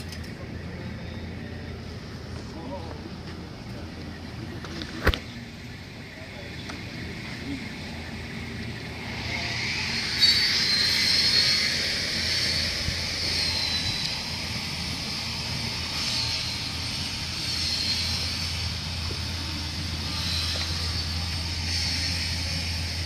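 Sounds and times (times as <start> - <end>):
low hum: 0.0 - 23.0
high-pitched rushing hiss: 5.4 - 23.0.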